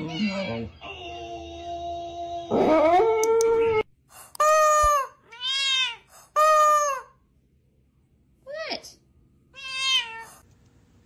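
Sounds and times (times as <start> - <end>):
dog howling: 0.8 - 3.9
cat meowing: 5.3 - 6.0, 9.5 - 10.4.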